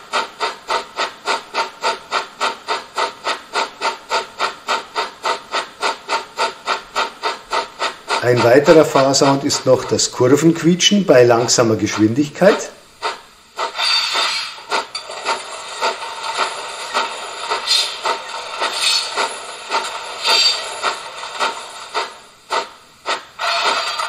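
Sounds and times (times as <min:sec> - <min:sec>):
model steam locomotive chuffs: 0:00.0 - 0:24.0
wheel flange squeals: 0:20.2 - 0:20.8.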